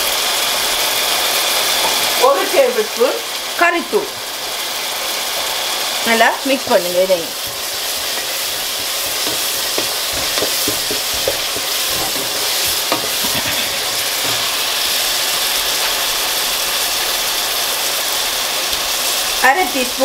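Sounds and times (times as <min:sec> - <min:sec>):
food sizzling in a pot: 0:00.0 - 0:20.0
wooden spatula scraping a pot: 0:07.4 - 0:14.8.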